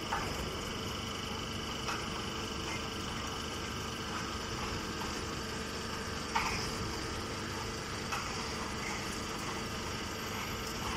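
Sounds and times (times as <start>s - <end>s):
machinery humming: 0.0s - 10.9s.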